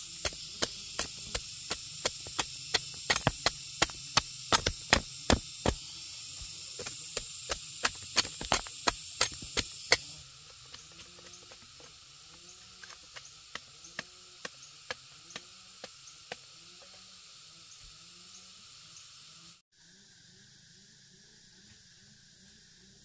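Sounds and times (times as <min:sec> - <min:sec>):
steady high hiss: 0:00.0 - 0:23.0
machete knocking on tree trunk: 0:00.2 - 0:05.8, 0:06.8 - 0:10.1.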